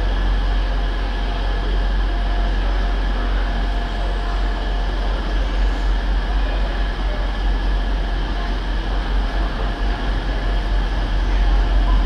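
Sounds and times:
diesel locomotive engine droning: 0.0s - 12.0s.

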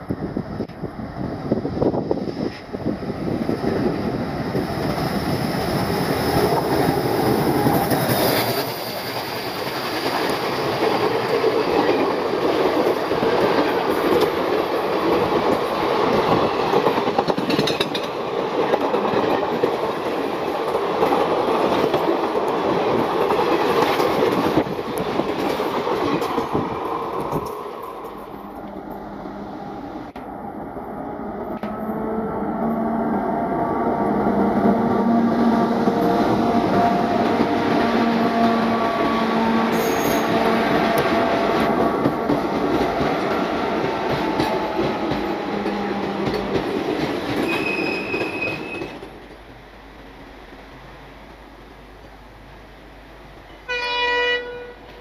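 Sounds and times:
diesel locomotive engine: 0.0s - 55.0s
train wheels clacking over rail joints: 6.3s - 20.0s, 36.6s - 49.4s
wheel squeal: 47.4s - 49.0s.

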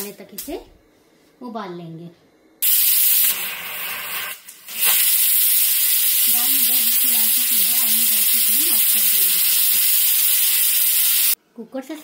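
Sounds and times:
pressure cooker steam hiss: 2.6s - 11.4s.

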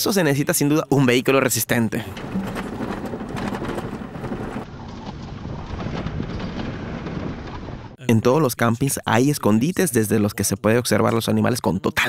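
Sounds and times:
car rattling over gravel road: 2.0s - 8.0s.

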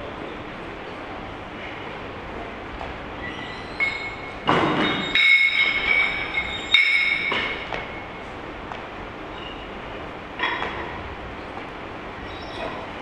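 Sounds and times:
metal ringing tone: 3.5s - 8.1s
weightlifting bar clanking: 3.8s - 7.7s.

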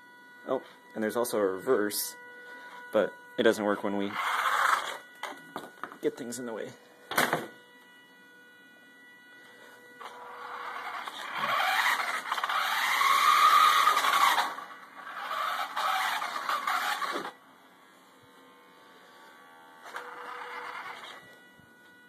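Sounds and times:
toy car electric motor whining: 3.6s - 5.9s, 9.4s - 17.4s, 18.5s - 22.0s.

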